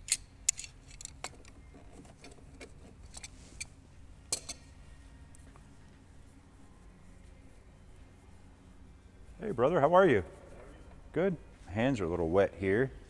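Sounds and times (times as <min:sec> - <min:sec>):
faint low hum: 0:00.0 - 0:13.0
hand tools tapping on metal: 0:04.3 - 0:04.7.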